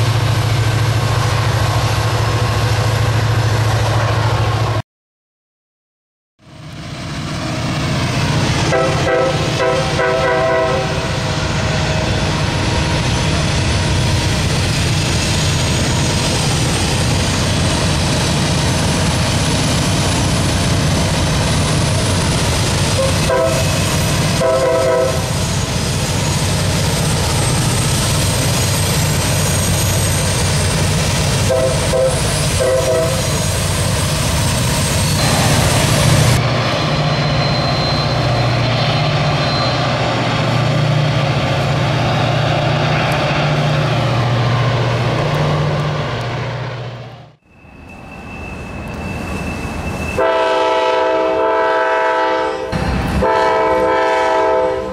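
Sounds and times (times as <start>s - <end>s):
diesel locomotive engine drone: 0.0s - 4.8s, 6.4s - 54.9s
locomotive horn blasts: 8.6s - 11.3s, 23.0s - 25.3s, 31.4s - 33.2s, 50.2s - 54.9s.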